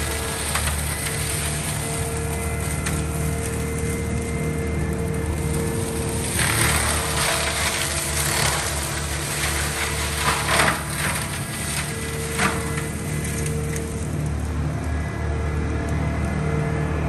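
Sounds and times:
diesel engine drone: 0.0 - 17.0
wood being shredded: 0.0 - 17.0
wood splintering cracks: 5.0 - 14.5.

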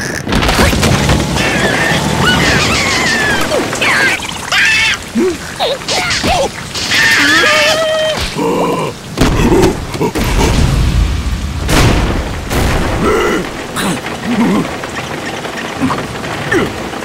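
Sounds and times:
squawky cartoon voices: 0.0 - 10.6
heavy rain hiss: 0.4 - 17.0
deep loud boom: 10.2 - 13.5.

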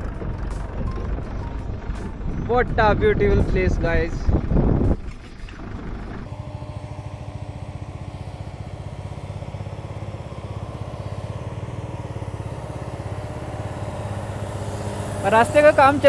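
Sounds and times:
motorcycle engine chugging: 0.0 - 16.0.

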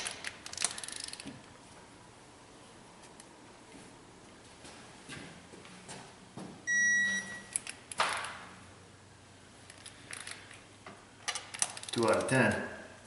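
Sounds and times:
wrench beep: 6.7 - 7.6.

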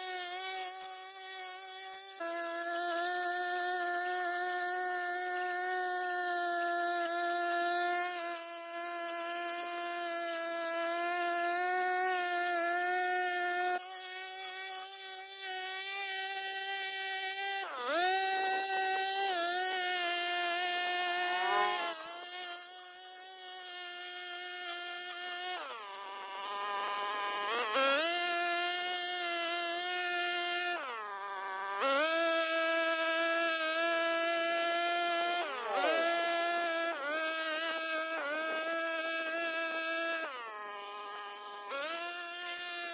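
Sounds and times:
brush cutter engine running: 32.7 - 42.9.

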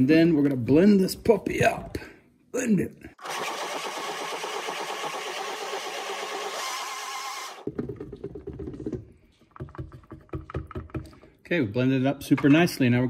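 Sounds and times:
blender running: 3.2 - 7.7.

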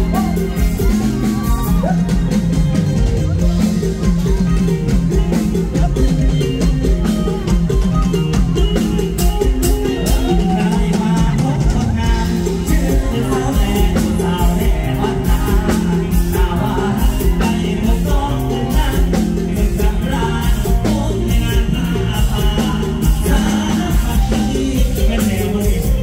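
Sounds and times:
bass guitar: 0.0 - 26.0
drum kit: 0.0 - 26.0
live band playing: 0.0 - 26.0
man singing into a microphone: 9.8 - 26.0.

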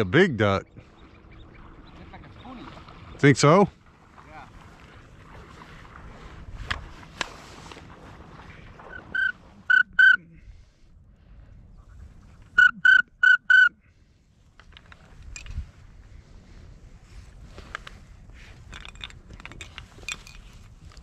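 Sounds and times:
duck whistle call notes: 8.9 - 10.3, 12.6 - 13.9.

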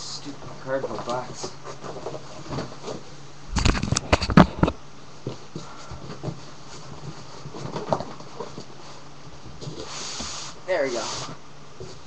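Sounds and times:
camera handling knocks and rubbing: 3.6 - 4.7.

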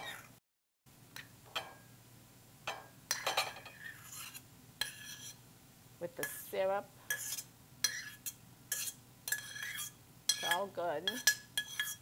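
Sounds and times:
metal tongs clinking on a pan: 7.1 - 12.0.

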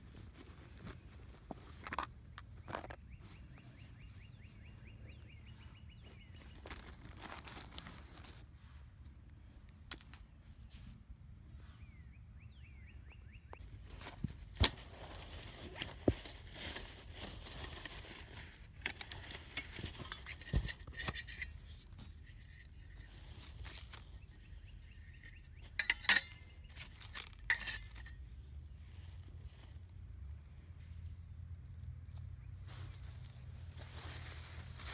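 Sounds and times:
metal clinks and scrapes: 18.8 - 28.2.

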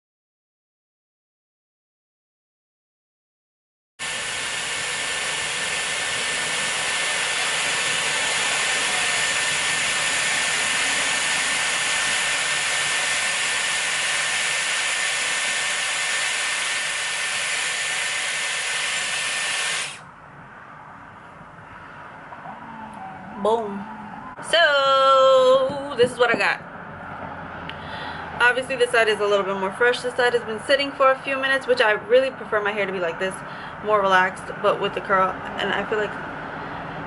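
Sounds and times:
hair styler blowing air: 4.0 - 20.0
high motor whine: 4.0 - 20.6.

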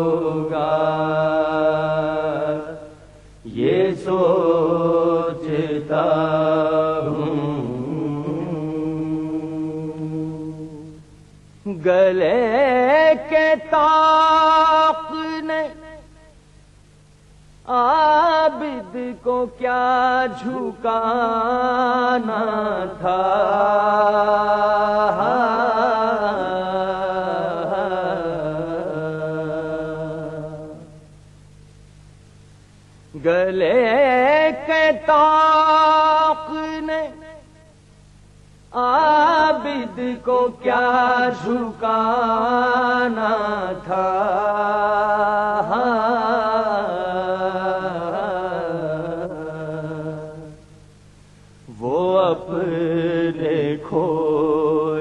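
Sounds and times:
steady low hum: 0.0 - 55.0
man singing a long held note: 11.6 - 16.4, 17.6 - 31.1, 33.1 - 37.8, 38.7 - 50.8, 51.7 - 55.0.

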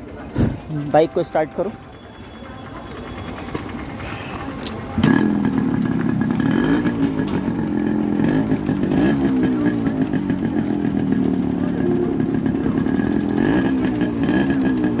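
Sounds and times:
two-stroke engine running: 0.0 - 15.0
motorcycle kick-start: 2.6 - 11.2.

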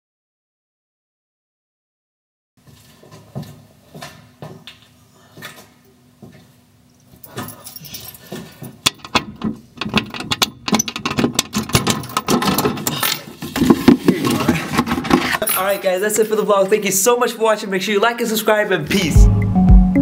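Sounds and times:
metal letterbox flap rattling: 8.9 - 13.3.

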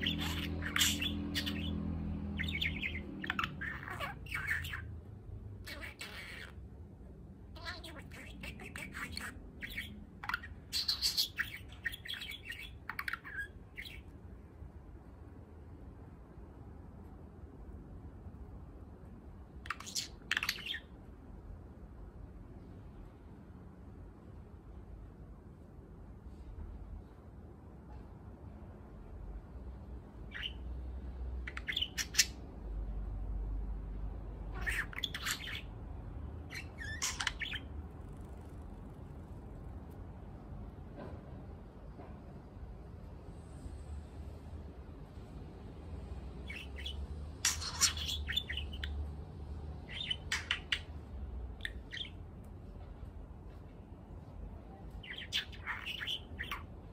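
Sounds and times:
budgerigar warbling: 0.0 - 4.9, 5.6 - 6.6, 7.6 - 14.1, 19.6 - 20.9, 30.3 - 30.6, 31.4 - 32.4, 34.5 - 35.8, 36.4 - 38.3, 46.4 - 49.0, 49.8 - 50.9, 51.6 - 52.2, 55.0 - 56.7.

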